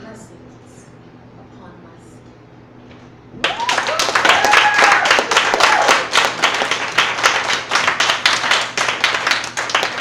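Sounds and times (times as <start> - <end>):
short cheer: 3.4 - 6.1
audience applauding: 3.4 - 10.0.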